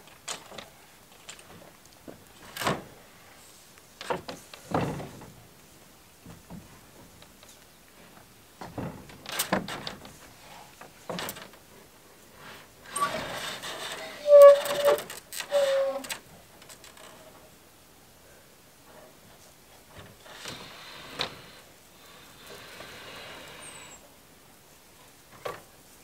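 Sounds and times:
panel scraping across metal roof: 0:12.4 - 0:16.2.

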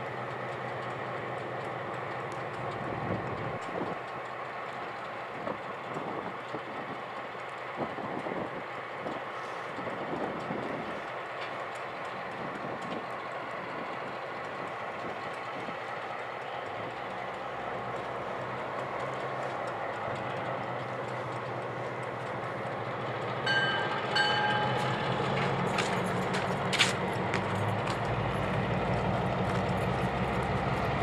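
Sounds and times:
freight train rumbling: 0:00.0 - 0:31.0
locomotive engines droning: 0:00.0 - 0:31.0
wheels clicking on rail: 0:00.0 - 0:31.0
train horn blasts: 0:23.5 - 0:25.7.

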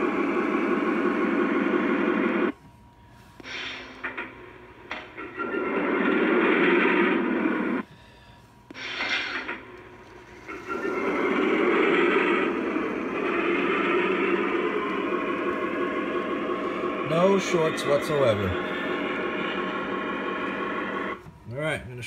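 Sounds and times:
model locomotive running: 0:08.8 - 0:21.2.

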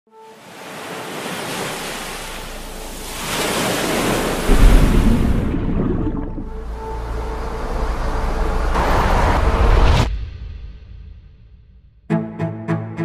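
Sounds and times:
sea waves washing: 0:00.1 - 0:09.2.

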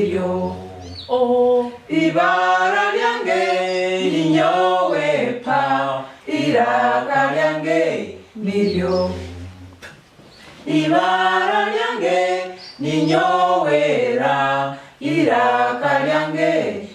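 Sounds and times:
group singing unaccompanied: 0:00.0 - 0:16.9.

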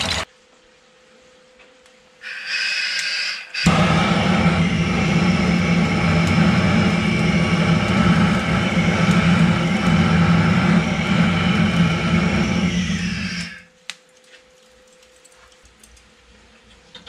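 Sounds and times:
gas torch flame roaring: 0:02.2 - 0:13.8
charcoal crackling: 0:03.7 - 0:16.2.

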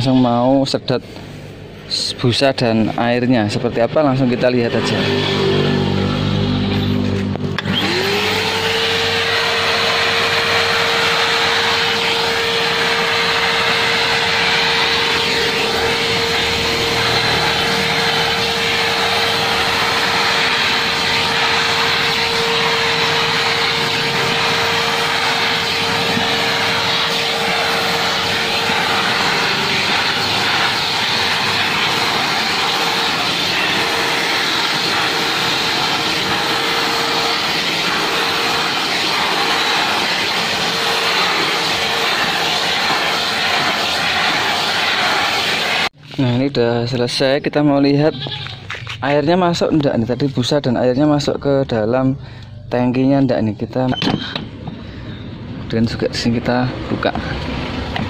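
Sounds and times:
vacuum sucking water: 0:03.7 - 0:46.0
vacuum cleaner motor whine: 0:04.0 - 0:46.0.

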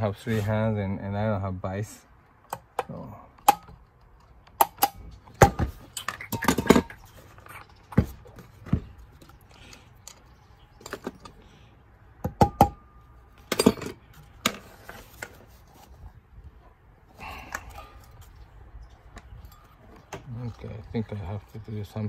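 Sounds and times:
metal tools clinking on workbench: 0:13.5 - 0:14.0.

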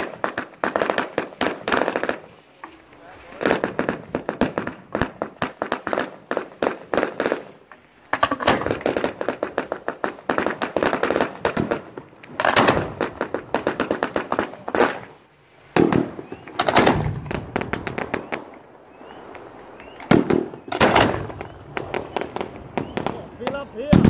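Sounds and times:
fireworks pops and bangs: 0:00.0 - 0:24.0.

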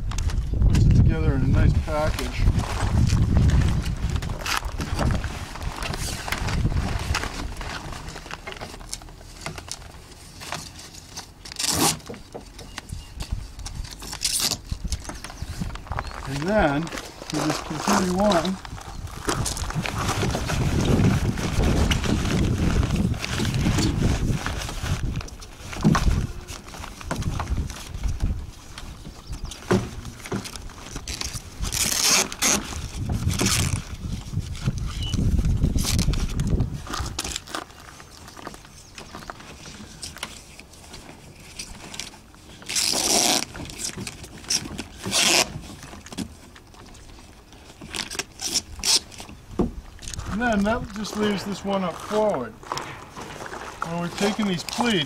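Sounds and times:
sailcloth rustling and crinkling: 0:00.0 - 0:55.0.

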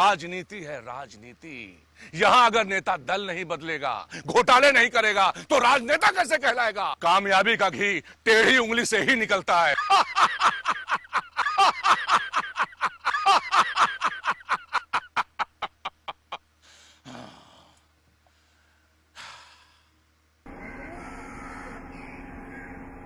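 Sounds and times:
man laughing: 0:09.7 - 0:16.5
heavy breaths: 0:16.6 - 0:20.0.

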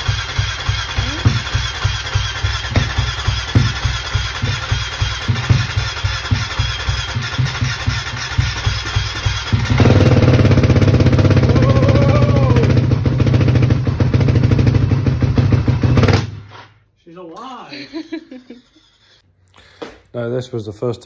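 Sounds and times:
motorcycle engine running unevenly: 0:00.0 - 0:16.4.

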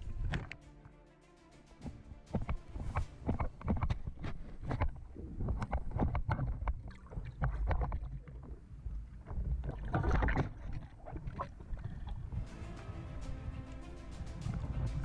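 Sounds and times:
music: 0:00.0 - 0:04.4, 0:12.3 - 0:15.0.

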